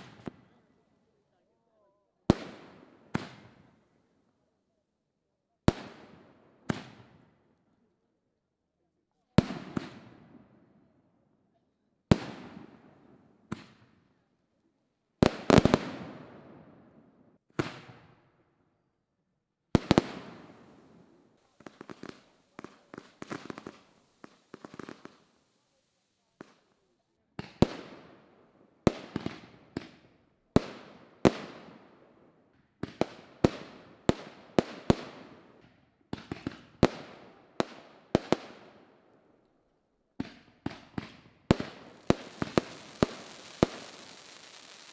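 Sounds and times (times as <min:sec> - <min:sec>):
small fireworks pops: 0:00.0 - 0:00.6, 0:05.7 - 0:07.2, 0:13.5 - 0:14.0, 0:17.4 - 0:18.1, 0:19.8 - 0:28.2, 0:28.9 - 0:31.8, 0:32.5 - 0:38.8, 0:39.4 - 0:44.9
fireworks bangs: 0:40.2 - 0:44.9.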